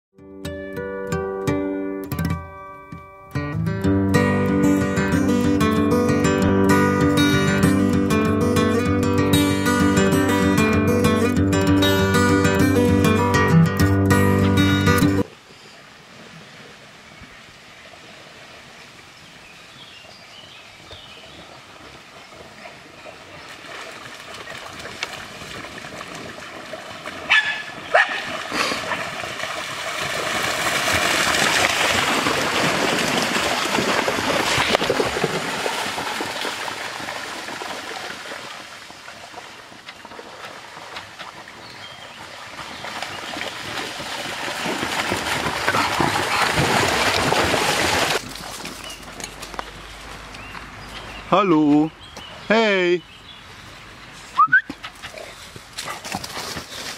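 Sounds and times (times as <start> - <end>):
dogs splashing through water: 19.7 - 51.3, 54.4 - 56.9
dog barks: 27.3 - 28.3.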